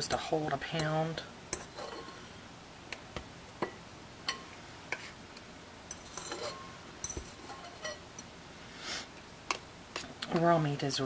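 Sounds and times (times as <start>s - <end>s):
fork clinking against bowl: 5.9s - 8.3s.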